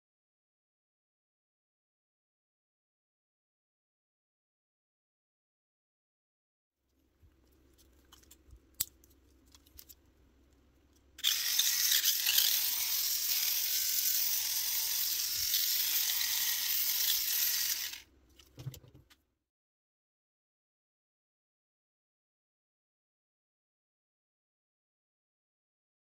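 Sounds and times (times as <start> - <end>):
small electric motor whirring: 11.2 - 18.1.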